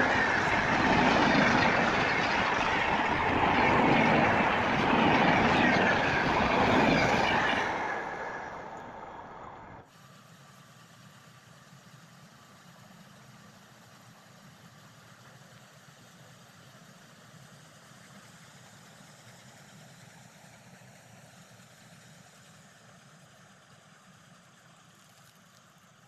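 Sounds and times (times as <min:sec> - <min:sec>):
vehicle low rumble with hiss: 0:08.4 - 0:26.0.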